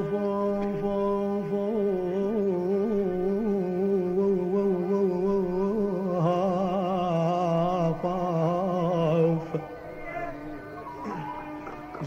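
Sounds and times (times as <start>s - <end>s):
person singing a held wavering note: 0.0s - 12.0s
musical accompaniment: 6.1s - 12.0s.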